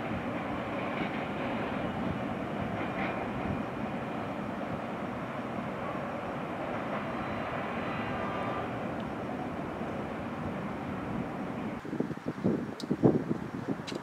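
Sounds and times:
train wheels rumbling on rail: 0.0 - 14.0.

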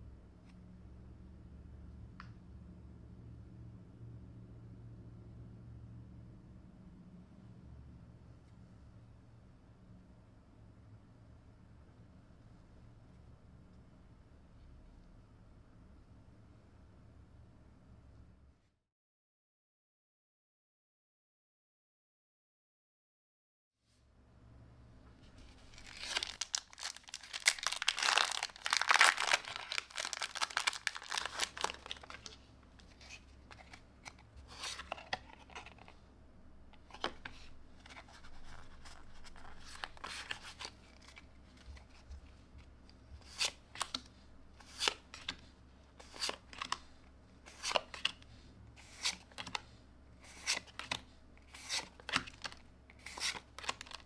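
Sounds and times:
trading cards rustling: 25.3 - 36.0, 36.8 - 42.4, 43.2 - 46.9, 47.5 - 48.2, 48.8 - 54.0
foil pack tearing: 25.8 - 32.3.

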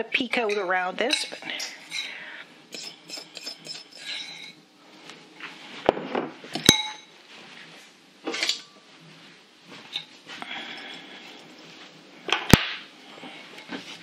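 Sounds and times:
dishes and cutlery clinking: 0.3 - 4.6, 6.0 - 7.2, 8.3 - 8.8, 9.9 - 11.5
fork scraping in a bowl: 0.4 - 4.6.

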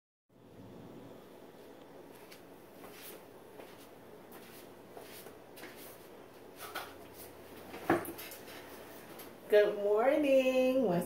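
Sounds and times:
shuffling and rustling: 2.0 - 9.4.

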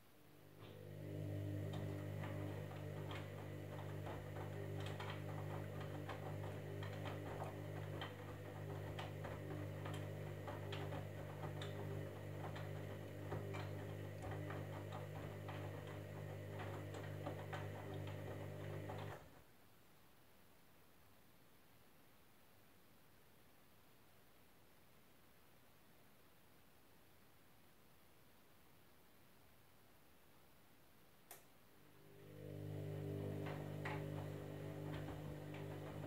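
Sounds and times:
washing machine motor hum: 0.3 - 19.4, 31.8 - 36.0
clicks and taps from tumbling load: 1.6 - 19.3, 32.4 - 36.0.

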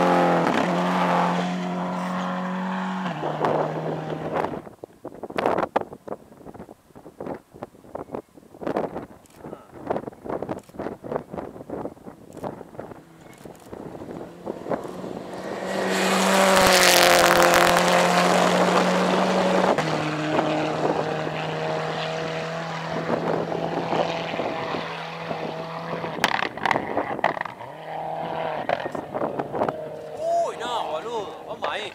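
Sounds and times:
rally car engine at full throttle: 0.0 - 4.8, 12.4 - 31.9.

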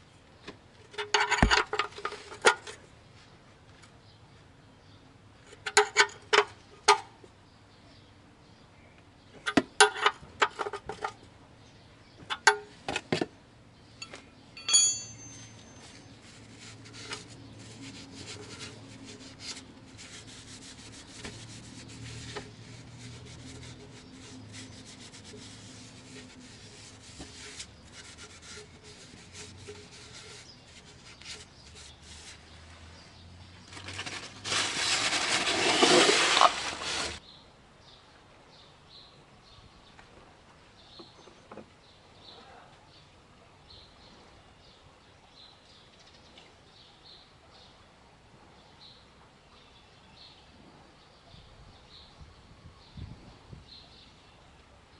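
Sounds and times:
faint scraping of drain plug: 0.9 - 2.8, 16.1 - 32.7, 33.6 - 37.2
metallic ping: 14.0 - 15.8.

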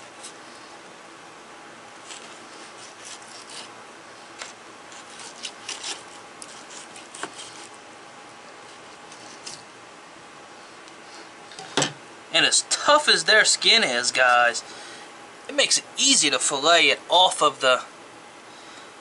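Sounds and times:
steady background hiss: 0.0 - 19.0
knife scraping fish skin: 2.0 - 3.7, 4.4 - 7.8.

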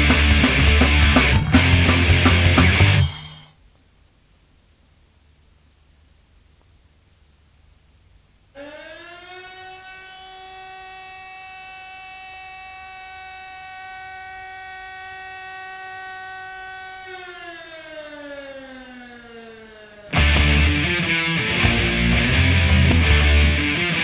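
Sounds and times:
siren: 8.5 - 21.4.

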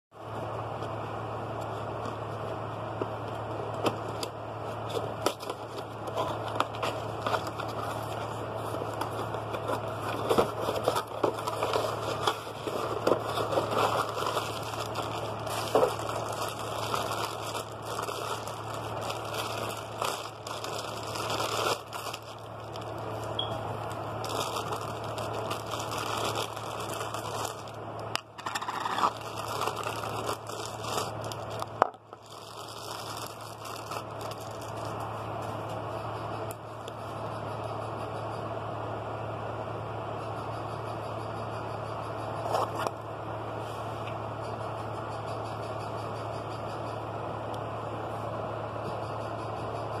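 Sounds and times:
steady low hum: 0.1 - 50.0
plastic wrapping crinkling: 4.9 - 35.6.

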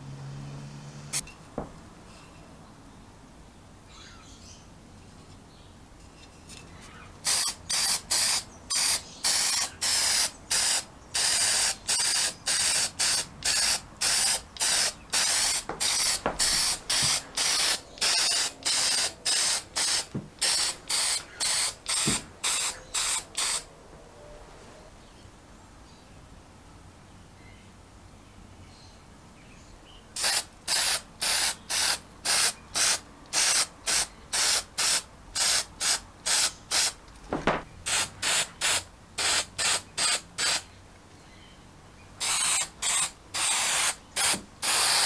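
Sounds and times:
aerosol spray can hissing: 7.2 - 23.6, 30.2 - 37.0, 37.9 - 40.6, 42.2 - 45.0.

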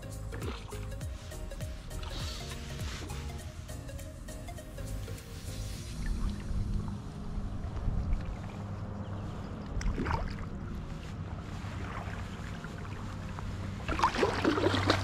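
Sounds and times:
water sloshing and splashing: 0.4 - 0.9, 7.7 - 15.0
wind rumble on microphone: 5.8 - 15.0
fish thrashing at the surface: 13.9 - 15.0.

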